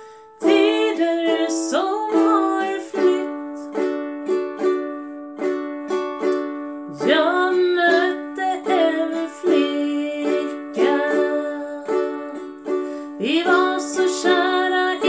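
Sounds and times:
ukulele strumming: 0:00.0 - 0:15.0
woman singing: 0:00.4 - 0:03.8, 0:06.8 - 0:15.0.

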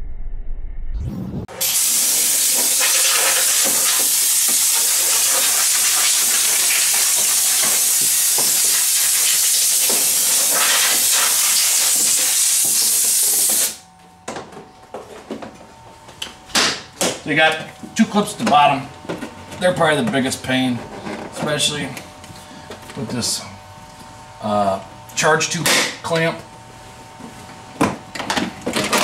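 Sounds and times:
compressed air hissing: 0:01.5 - 0:13.8.

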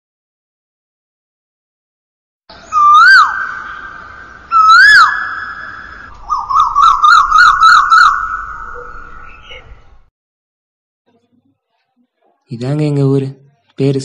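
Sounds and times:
long wailing bird call: 0:02.5 - 0:09.9
warbling bird notes: 0:02.5 - 0:10.0.

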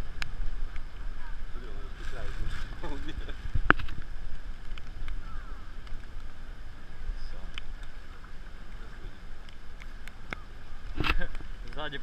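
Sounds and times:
wind rumble on microphone: 0:00.0 - 0:12.0
faint clicks: 0:03.6 - 0:06.3, 0:07.4 - 0:08.8, 0:09.4 - 0:11.9.

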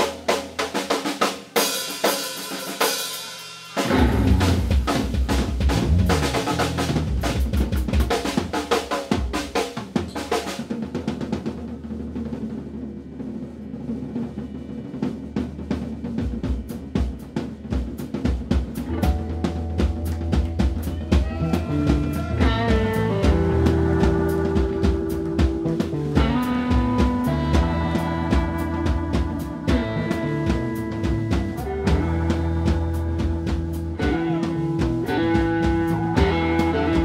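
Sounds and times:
snare and cymbal strokes: 0:00.0 - 0:11.3
live blues band: 0:00.0 - 0:11.6, 0:16.2 - 0:37.0.

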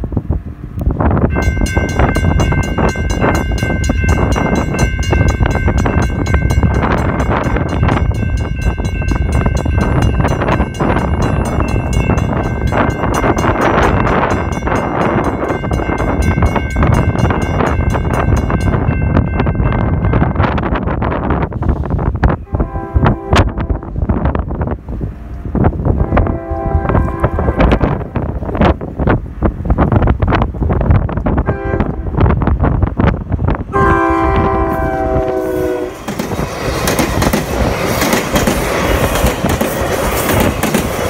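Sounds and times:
railroad crossing bell ringing: 0:01.2 - 0:21.1.

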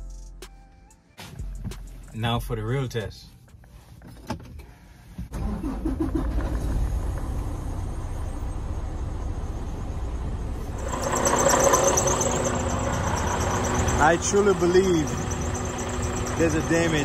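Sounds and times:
diesel engine idling: 0:07.7 - 0:17.0
high whine: 0:09.6 - 0:17.0
starter cranking: 0:10.8 - 0:17.0.

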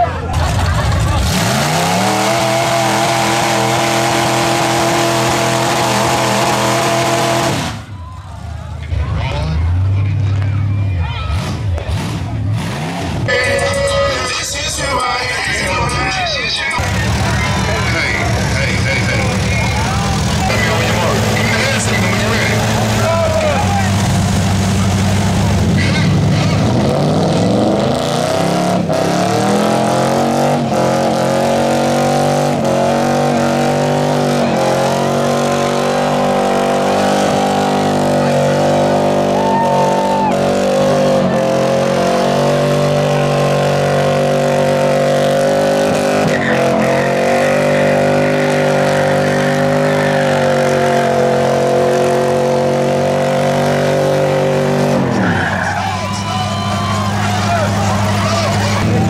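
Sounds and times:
tyres spinning and squealing: 0:00.0 - 0:59.0
car engine revving at high rpm: 0:01.0 - 0:07.9, 0:16.7 - 0:55.3.

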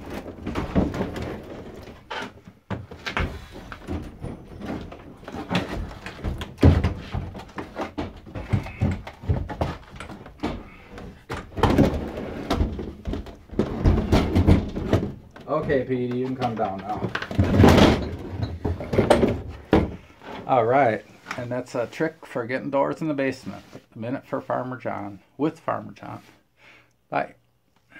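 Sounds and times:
wooden door knocking on stairs: 0:05.7 - 0:10.8.

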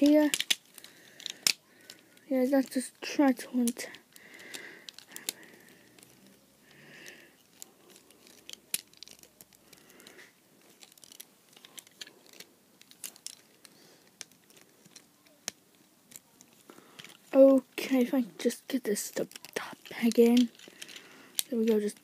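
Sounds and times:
plastic toy clicks and taps: 0:00.0 - 0:02.0, 0:19.2 - 0:22.0.

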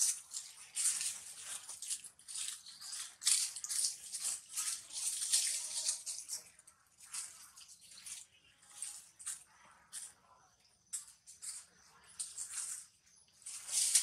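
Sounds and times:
dry leaves rustling and crackling: 0:00.0 - 0:09.5, 0:12.2 - 0:14.0.

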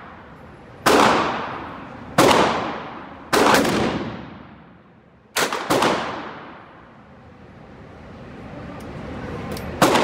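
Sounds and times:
gunshots echoing in hall: 0:00.8 - 0:06.8, 0:09.8 - 0:10.0.

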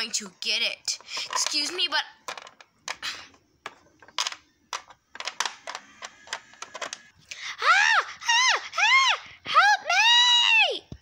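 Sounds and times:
plastic toy figurines clicking: 0:04.0 - 0:07.1.

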